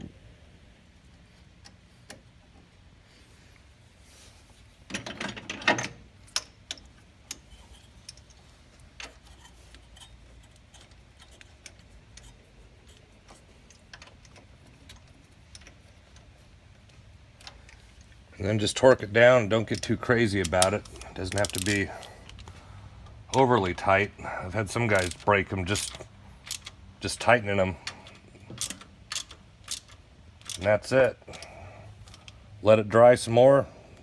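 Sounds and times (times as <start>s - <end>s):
small metal clicks and clinks: 19.7s - 22.5s
metal parts clattering: 24.9s - 26.7s.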